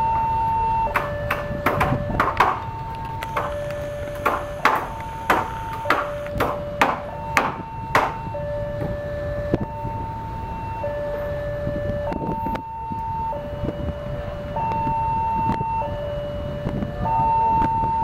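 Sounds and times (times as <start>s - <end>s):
two-pitch warning siren: 0.0s - 18.0s
sharp knocks: 0.9s - 8.2s.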